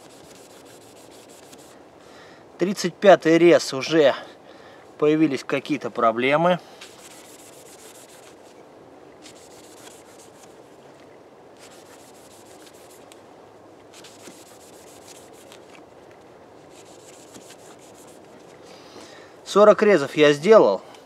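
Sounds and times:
knife sawing through rope: 0.0 - 1.8, 6.8 - 8.5, 9.2 - 10.5, 11.6 - 13.1, 14.0 - 15.8, 16.6 - 18.4.

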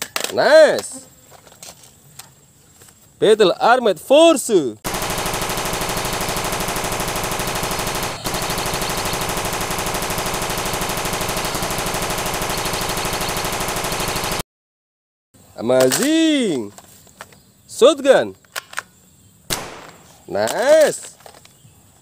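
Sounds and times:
machine gun firing: 4.8 - 14.4, 19.5 - 20.2.

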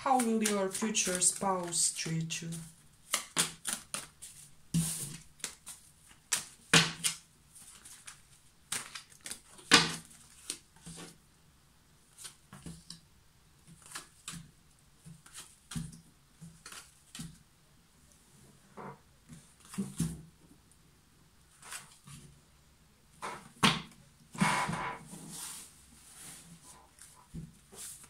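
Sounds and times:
cards being shuffled: 0.0 - 11.2, 13.7 - 14.5, 15.1 - 17.4.

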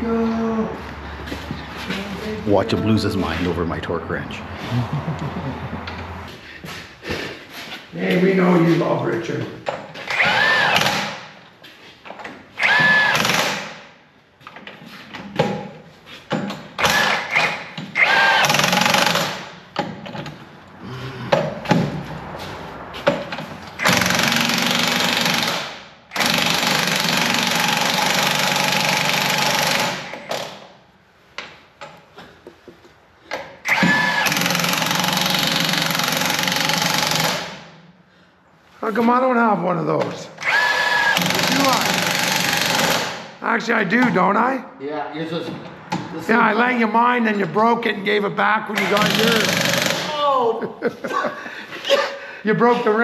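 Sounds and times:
power torque wrench whine: 10.1 - 11.2, 12.6 - 13.6, 16.8 - 19.4, 23.8 - 30.4, 33.6 - 37.6, 40.4 - 43.2.

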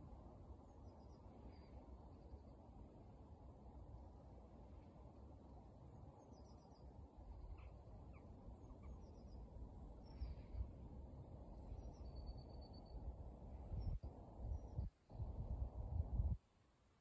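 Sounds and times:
small birds singing: 6.1 - 10.7, 11.6 - 13.0, 13.6 - 15.4.

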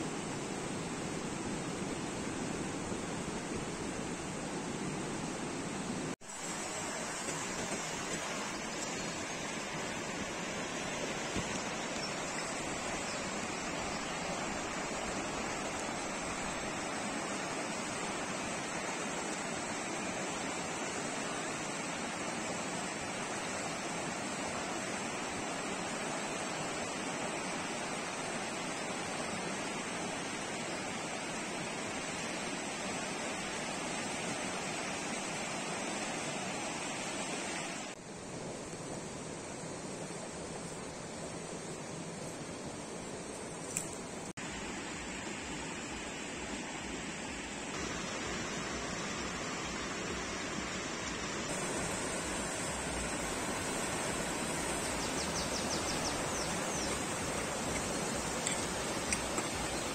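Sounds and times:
stream rushing over rocks: 0.0 - 59.9.

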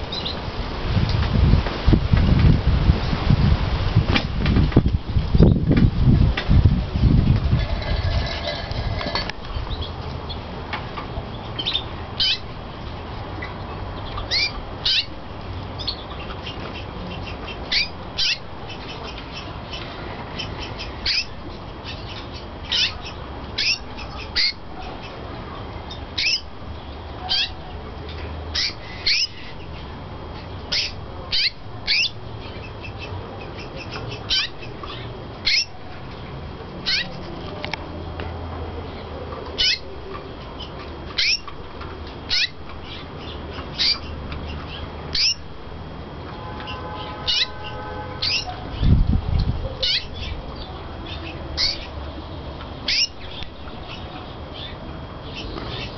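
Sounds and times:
canary chirping: 11.4 - 12.6, 13.4 - 15.2, 15.8 - 25.2, 25.9 - 26.5, 27.2 - 29.8, 30.4 - 36.2, 36.8 - 37.3, 39.6 - 41.6, 42.3 - 45.5, 46.3 - 49.0, 49.8 - 52.0, 52.8 - 55.9.

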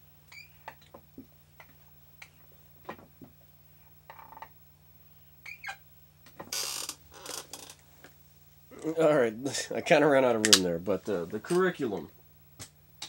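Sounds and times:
faint low hum: 0.0 - 13.0
marker squeaking on whiteboard: 5.4 - 5.8.

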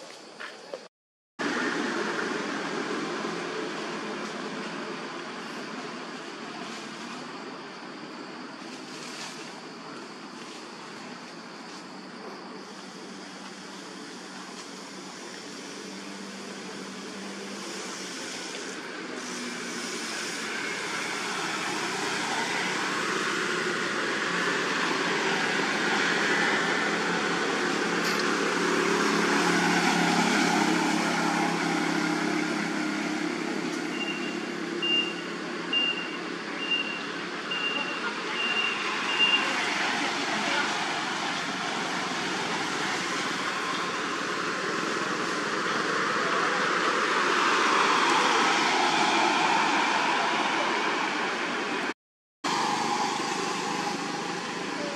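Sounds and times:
vehicle engine and tyre noise: 0.0 - 54.9.

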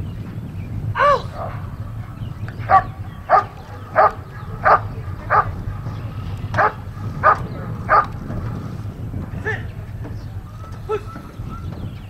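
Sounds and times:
dog barking: 1.0 - 8.8.

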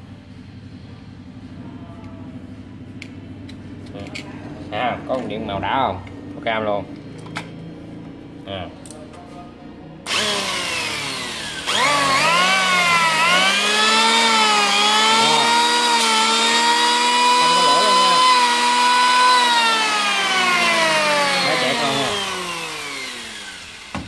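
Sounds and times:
electric planer whine: 10.1 - 24.0.

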